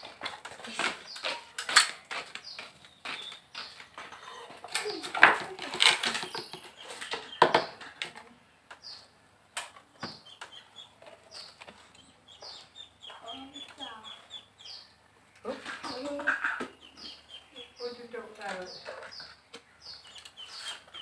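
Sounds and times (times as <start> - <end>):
plastic dipper knocking and scraping: 5.2 - 7.8
faint bird chirps: 9.9 - 21.0.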